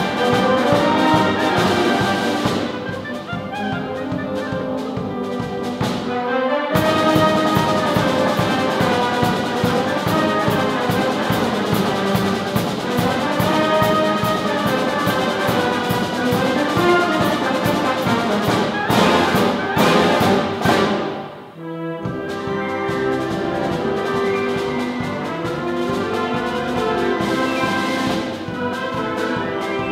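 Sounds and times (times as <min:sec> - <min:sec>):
concert band playing: 0:00.0 - 0:29.9.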